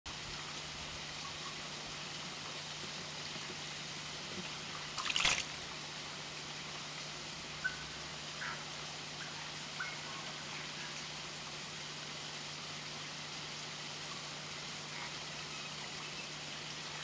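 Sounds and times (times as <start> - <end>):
faint water drips: 0.3 - 17.0
duck diving splash: 5.0 - 5.6.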